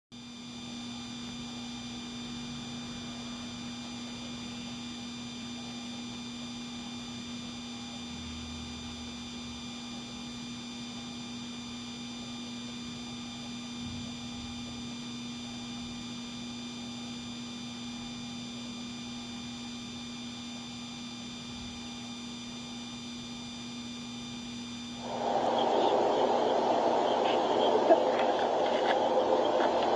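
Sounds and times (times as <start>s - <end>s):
high-pitched whining tones: 25.0s - 29.9s
low tone hum: 25.0s - 29.9s.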